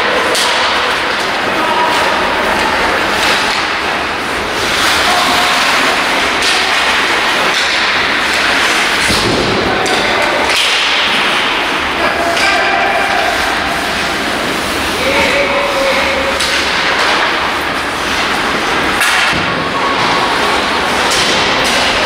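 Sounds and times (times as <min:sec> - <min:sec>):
hockey sticks clacking: 0:00.0 - 0:22.0
skates scraping ice: 0:00.0 - 0:22.0
puck thudding against boards: 0:04.6 - 0:12.7.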